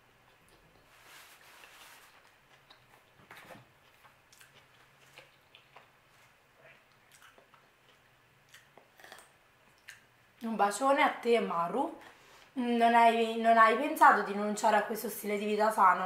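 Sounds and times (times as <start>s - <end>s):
low steady hum: 0.0s - 16.0s
chewing with wet mouth clicks: 2.1s - 3.2s, 3.8s - 10.1s.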